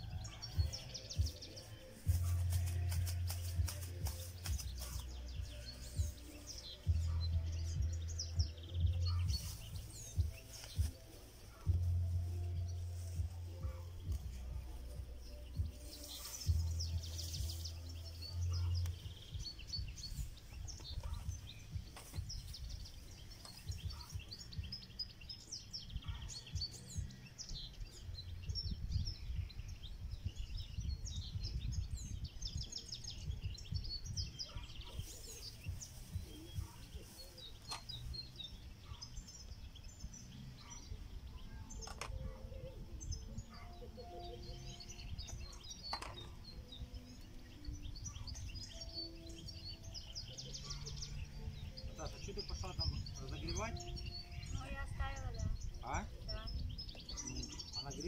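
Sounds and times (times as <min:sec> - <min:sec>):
small birds chirping: 0:00.0 - 0:58.0
wind rumble on microphone: 0:16.5 - 0:58.0.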